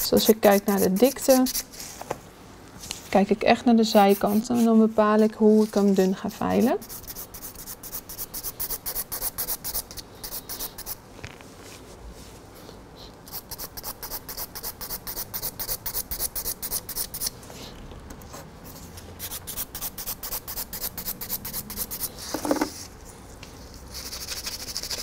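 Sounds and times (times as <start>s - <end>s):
nail file rasping on a nail: 0.0s - 1.7s, 3.9s - 4.7s, 6.5s - 11.0s, 13.3s - 17.4s, 19.2s - 22.7s, 24.0s - 25.0s.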